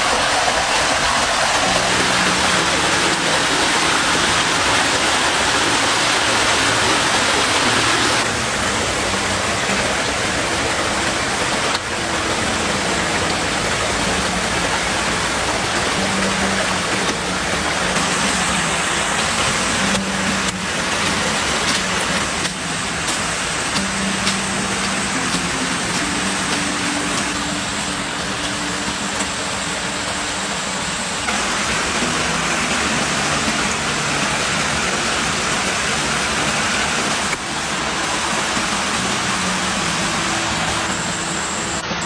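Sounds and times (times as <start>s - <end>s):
stream and waterfall rushing: 0.0s - 42.0s.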